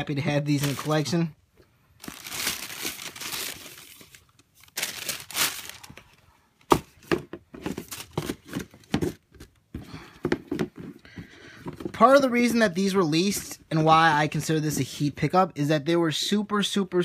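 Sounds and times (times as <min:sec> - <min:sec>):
tissue paper rustling: 0:00.5 - 0:01.1, 0:02.0 - 0:06.2
hand tapping and scraping a box: 0:06.7 - 0:12.0.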